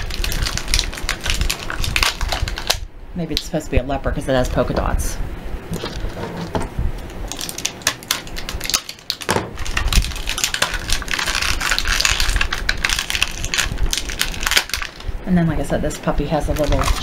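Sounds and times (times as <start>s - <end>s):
plastic rustling and crinkling: 0.0s - 2.9s, 5.7s - 15.2s, 16.0s - 17.0s.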